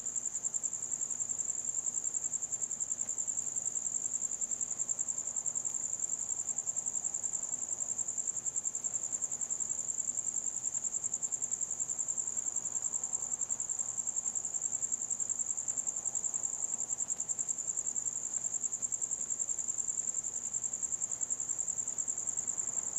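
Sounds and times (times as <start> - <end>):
crickets chirping: 0.0 - 22.9.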